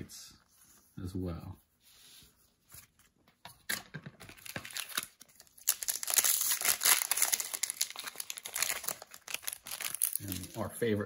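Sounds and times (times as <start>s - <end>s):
foil wrapper tearing and crinkling: 4.3s - 10.6s.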